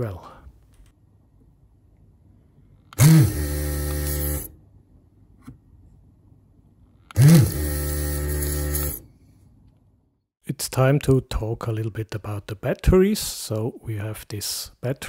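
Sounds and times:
vacuum pump whine and buzz: 0:03.0 - 0:04.5, 0:07.1 - 0:09.0.

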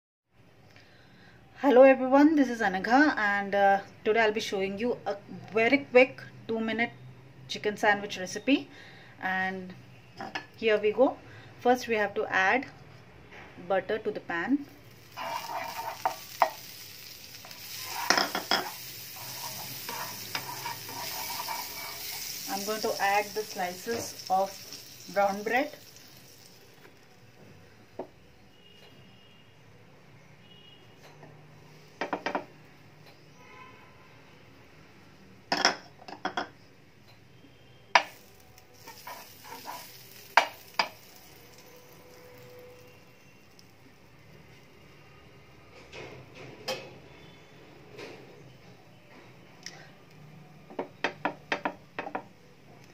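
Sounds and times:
butter sizzling in a pan: 0:14.7 - 0:27.3, 0:38.0 - 0:43.9
spatula scraping a pan: 0:15.0 - 0:25.4, 0:38.8 - 0:42.9.

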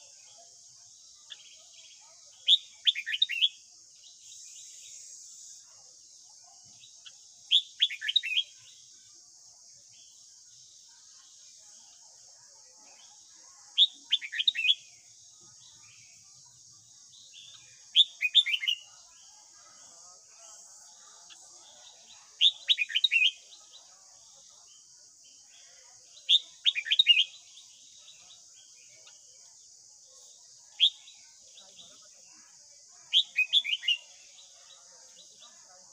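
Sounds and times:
bird singing whistled notes: 0:01.2 - 0:05.1, 0:06.8 - 0:08.8, 0:13.8 - 0:14.9, 0:17.1 - 0:18.9, 0:21.3 - 0:23.9, 0:26.2 - 0:29.3, 0:30.7 - 0:32.0, 0:33.1 - 0:34.6.

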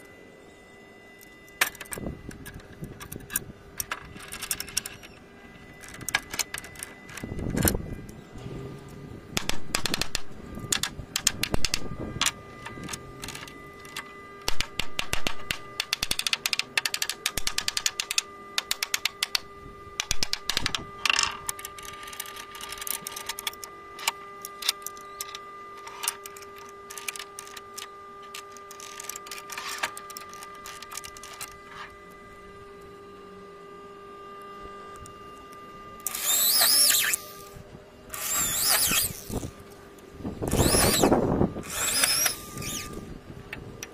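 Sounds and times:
electric drill boring into wood: 0:09.4 - 0:31.6, 0:36.0 - 0:39.7, 0:40.4 - 0:43.2.

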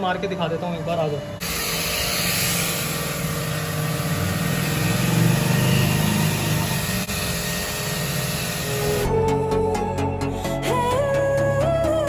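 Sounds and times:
foam cannon spraying hiss: 0:01.4 - 0:09.0
pressure washer motor humming: 0:01.4 - 0:10.4.

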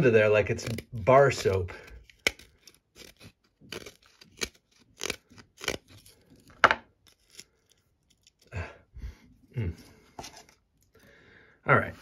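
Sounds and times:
knife scraping wood: 0:00.4 - 0:08.5, 0:09.9 - 0:10.9.

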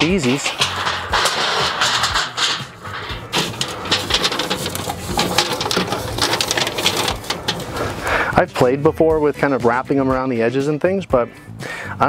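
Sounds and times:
aluminium foil crinkling: 0:00.2 - 0:08.0.

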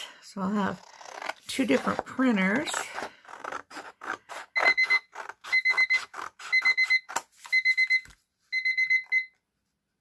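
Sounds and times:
scissors cutting paper: 0:00.5 - 0:07.5
timer alarm beeping: 0:04.6 - 0:09.4.

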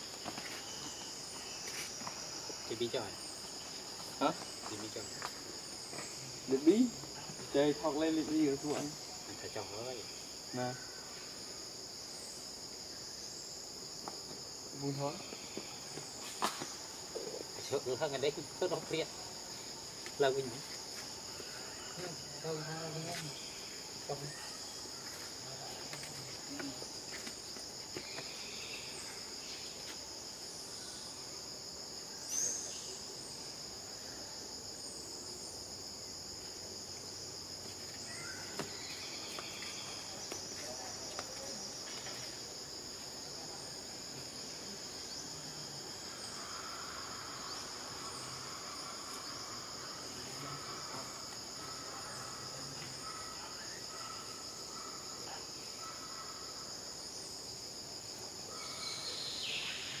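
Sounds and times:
insects buzzing: 0:00.0 - 1:00.0.

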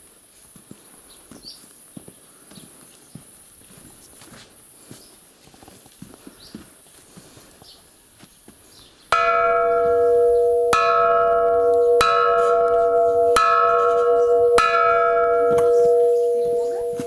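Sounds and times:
metal cylinder bell struck: 0:09.2 - 0:17.0.

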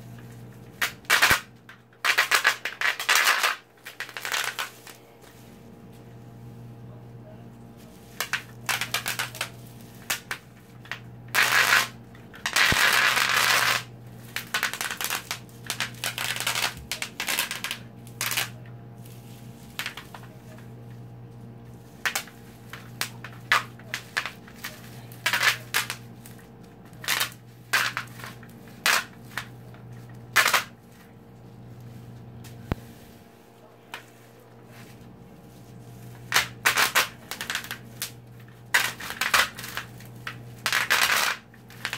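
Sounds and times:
bubble wrap popping: 0:00.0 - 0:41.9.

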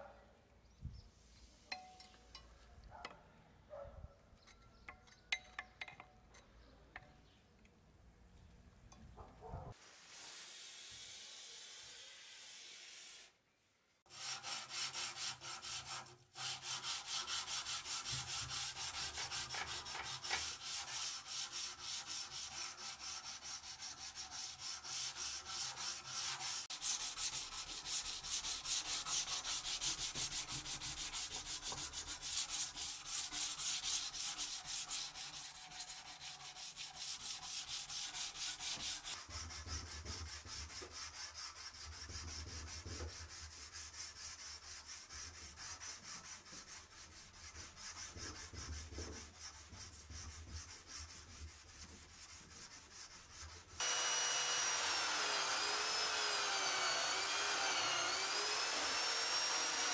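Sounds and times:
sandpaper rubbing metal blade: 0:14.1 - 0:42.2.

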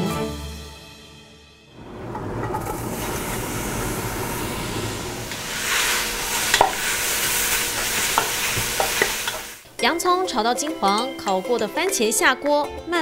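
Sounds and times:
onions sizzling in a pot: 0:02.4 - 0:10.9.

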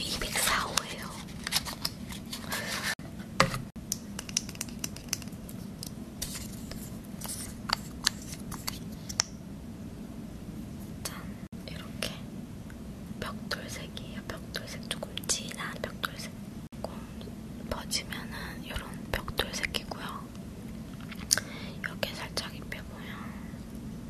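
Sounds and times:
paper box handling rustles: 0:00.1 - 0:03.0.

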